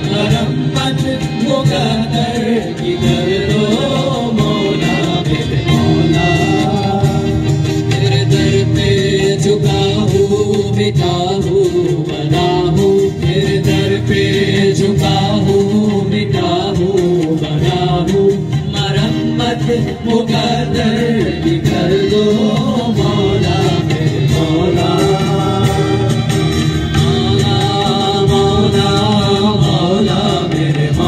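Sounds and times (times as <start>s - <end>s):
acoustic guitars: 0.0s - 31.0s
harmonium: 0.0s - 31.0s
steady percussion beat: 0.0s - 31.0s
voices singing together: 0.0s - 31.0s.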